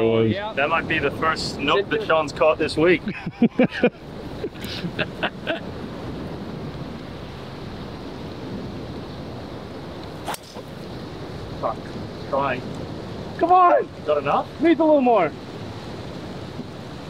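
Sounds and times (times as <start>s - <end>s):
surf: 0.0s - 17.0s
wind noise on microphone: 0.0s - 17.0s
golf ball struck: 10.2s - 10.8s.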